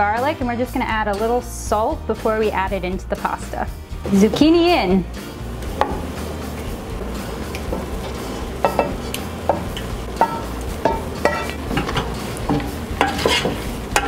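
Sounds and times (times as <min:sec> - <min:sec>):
pasta being stirred: 0:04.1 - 0:14.0
spoon knocking on frying pan: 0:05.6 - 0:14.0.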